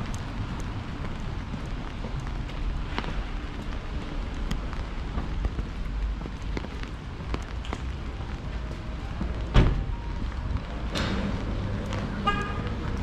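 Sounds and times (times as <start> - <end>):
low street rumble: 0.0 - 13.0
raindrops tapping: 0.0 - 13.0
loud thump: 9.5 - 9.9.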